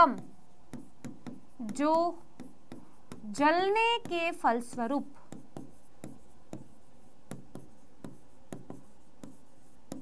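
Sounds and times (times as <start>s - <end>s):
writing taps on a board: 0.0s - 10.0s.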